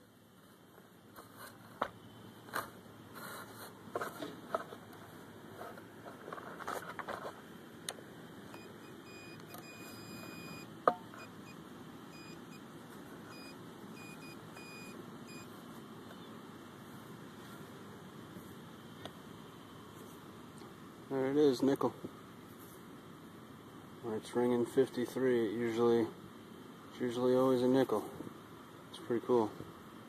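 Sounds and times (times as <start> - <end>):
metal detector high beeps: 8.6 - 11.6, 13.3 - 15.5.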